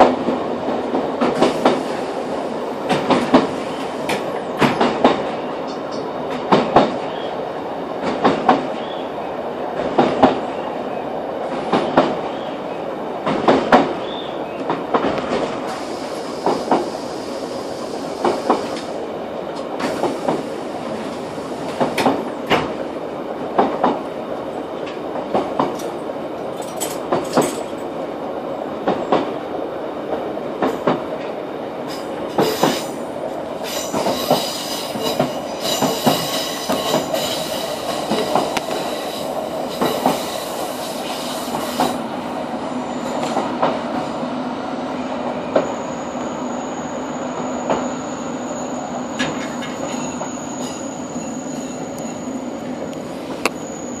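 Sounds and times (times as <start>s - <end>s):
train running rumble: 0.0s - 10.7s, 11.3s - 45.7s
train wheels clicking over rail joints: 2.8s - 7.0s, 18.2s - 18.9s, 19.6s - 22.8s, 24.8s - 27.9s, 30.1s - 33.0s, 33.6s - 42.0s.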